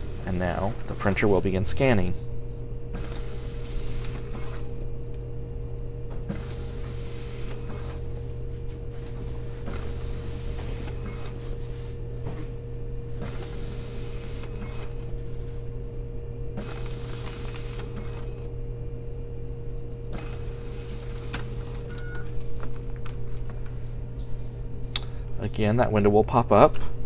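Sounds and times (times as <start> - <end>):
paper swishing through rollers: 0.0 - 1.6, 2.9 - 4.8, 6.2 - 12.6, 13.2 - 15.6, 16.6 - 18.4, 20.2 - 23.5
scanner feed motor humming: 0.0 - 25.7.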